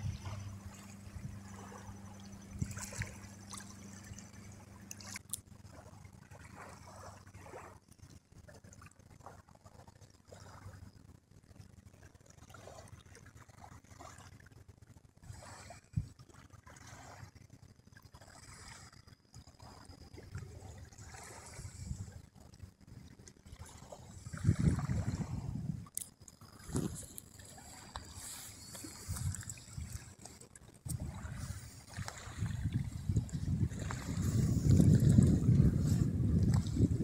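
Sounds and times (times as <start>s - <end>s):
small waves lapping on stones: 0.0s - 7.7s, 23.2s - 37.0s
low steady hum: 0.0s - 37.0s.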